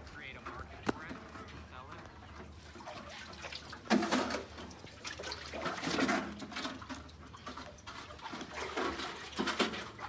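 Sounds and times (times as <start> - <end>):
water splashing from bucket: 2.3 - 10.0.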